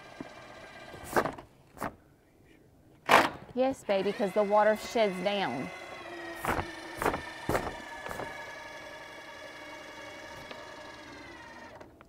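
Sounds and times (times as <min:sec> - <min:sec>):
impact driver motor whine: 0:00.0 - 0:01.3, 0:03.8 - 0:12.0.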